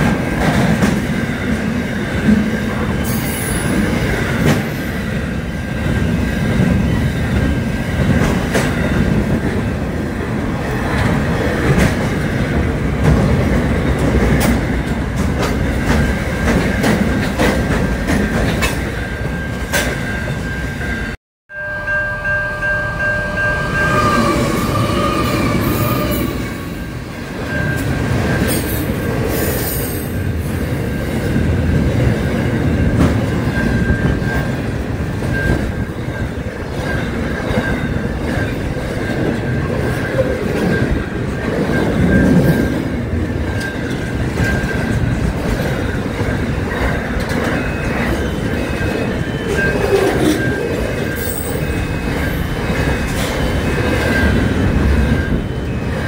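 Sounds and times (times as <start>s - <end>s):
freight train rumble: 0.0s - 56.0s
high wheel squeal: 22.7s - 28.7s.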